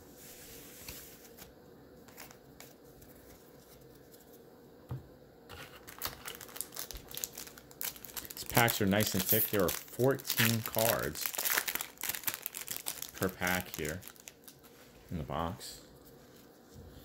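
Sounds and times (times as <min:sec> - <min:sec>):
card packs crinkling: 0:05.5 - 0:14.7.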